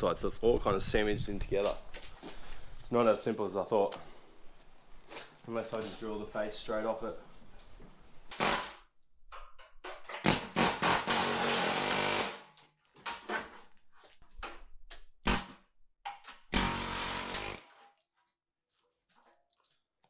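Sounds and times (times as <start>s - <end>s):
power drill drilling into steel: 10.3s - 12.4s, 16.6s - 17.7s.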